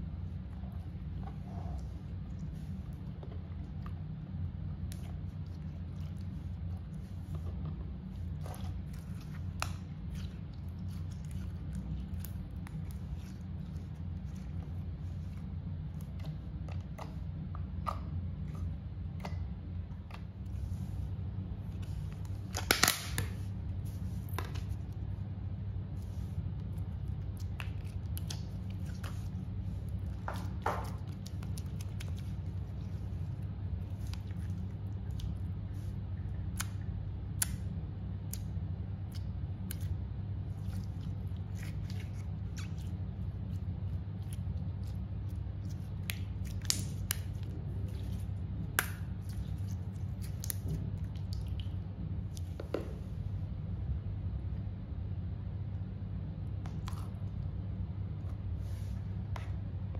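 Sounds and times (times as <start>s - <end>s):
hands squishing slime: 0.0s - 53.3s, 56.5s - 57.4s
steady low hum: 0.0s - 59.9s.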